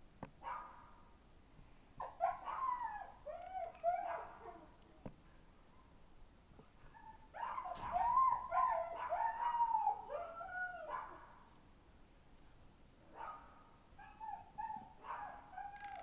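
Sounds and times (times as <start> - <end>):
dog whining and yelping: 1.5 - 4.8, 6.8 - 11.2, 13.9 - 16.0.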